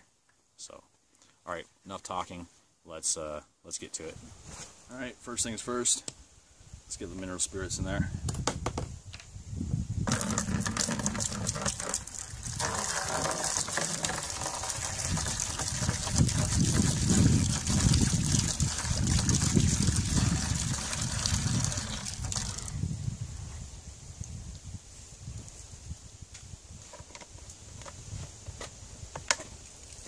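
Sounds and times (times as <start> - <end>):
liquid pouring from a plastic jug: 10.1 - 22.8.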